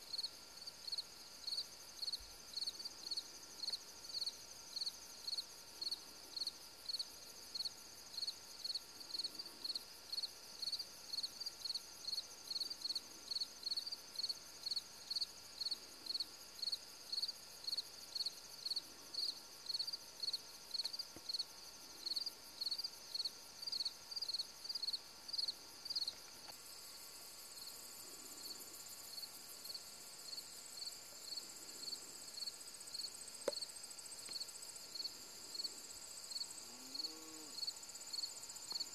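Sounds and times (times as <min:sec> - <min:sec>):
crickets chirping: 0:00.0 - 0:38.9
high-pitched insect trill: 0:11.2 - 0:38.9.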